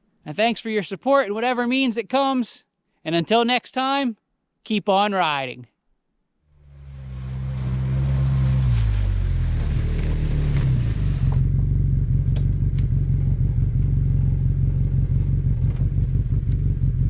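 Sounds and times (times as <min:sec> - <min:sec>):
utility vehicle engine running: 0:06.6 - 0:17.0
hiss: 0:07.7 - 0:11.4.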